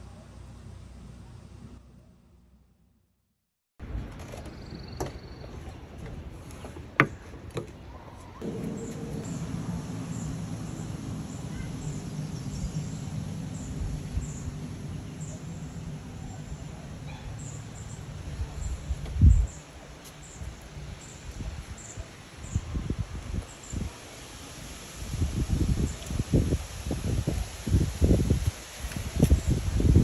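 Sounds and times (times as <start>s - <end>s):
steady low hum: 8.4s - 19.5s.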